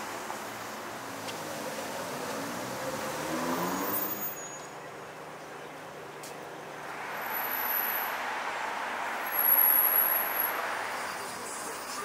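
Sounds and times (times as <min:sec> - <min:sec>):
vehicle passing: 0:00.0 - 0:04.4, 0:06.8 - 0:12.0.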